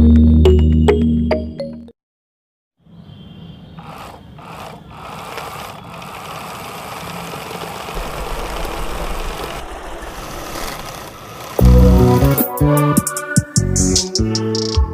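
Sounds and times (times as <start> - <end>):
small motor whirring: 3.8 - 12.5
low rumble: 8.0 - 12.4.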